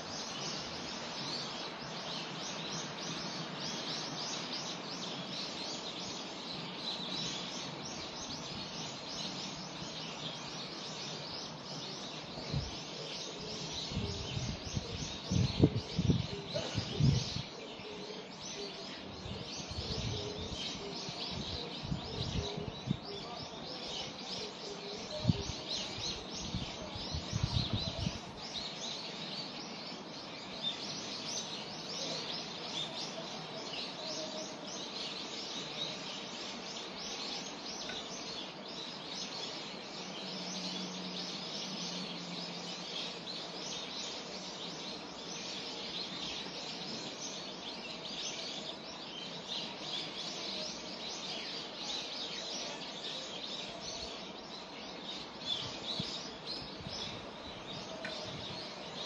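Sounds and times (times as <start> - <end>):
songbirds chirping: 0.0 - 59.0
wind buffeting microphone: 12.4 - 12.8, 13.6 - 17.5, 19.0 - 23.5, 25.1 - 28.7, 55.6 - 59.0.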